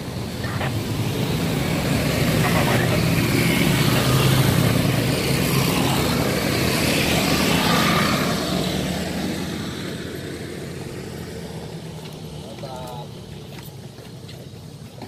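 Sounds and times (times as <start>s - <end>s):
vehicle engine humming: 0.0s - 15.0s.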